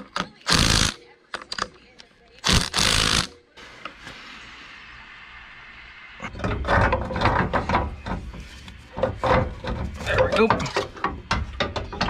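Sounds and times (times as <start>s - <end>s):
ratchet wrench clicking: 0.4s - 1.0s, 2.4s - 3.3s.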